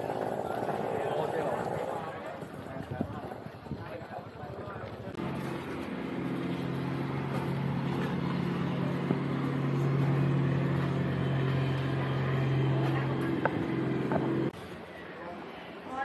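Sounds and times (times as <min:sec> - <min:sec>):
engine humming steadily: 0:04.6 - 0:14.6.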